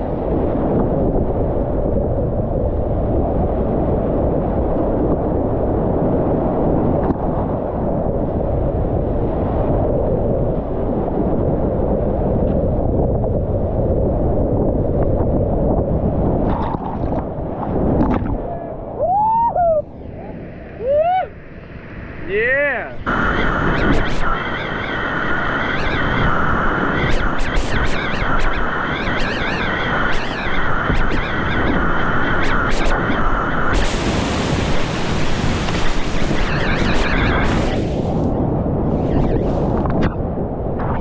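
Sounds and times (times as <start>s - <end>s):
wind buffeting microphone: 0.0s - 41.0s
person yelling: 20.8s - 21.3s.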